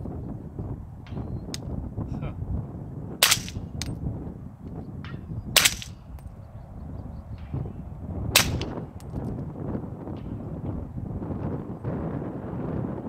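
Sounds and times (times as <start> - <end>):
wind buffeting microphone: 0.0 - 13.0
suppressed rifle shots: 3.2 - 4.0, 5.6 - 6.0, 8.4 - 8.8.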